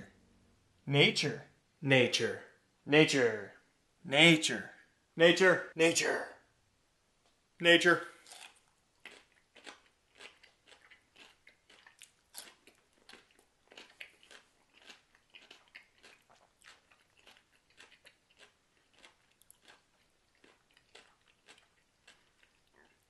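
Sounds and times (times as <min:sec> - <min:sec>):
chewing crunchy food: 0:08.2 - 0:23.0.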